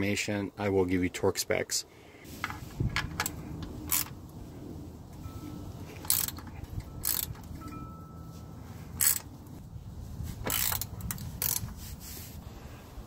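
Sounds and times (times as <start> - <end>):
socket ratchet clicking: 3.0 - 4.2, 6.0 - 7.7, 9.0 - 9.3, 10.5 - 11.7.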